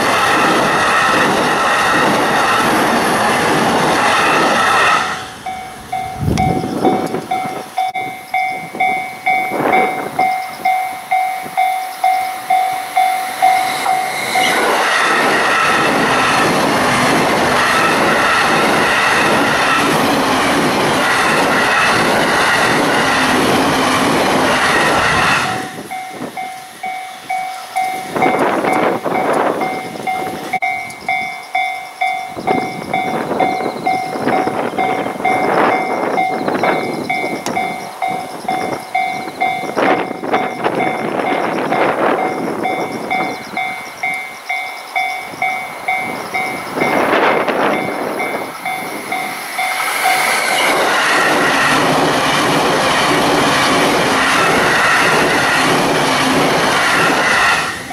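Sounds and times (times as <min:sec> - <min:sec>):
wind gusts on microphone: 0:00.0 - 0:11.7, 0:12.4 - 0:31.4, 0:32.3 - 0:44.6, 0:45.2 - 0:57.9
train passing at speed: 0:00.0 - 0:57.9
level crossing warning bell: 0:05.4 - 0:57.9.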